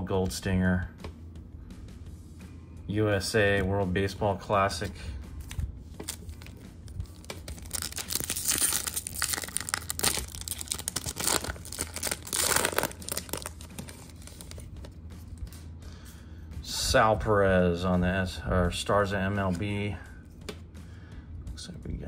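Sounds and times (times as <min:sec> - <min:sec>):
foil wrapper crinkling: 0:06.0 - 0:14.7.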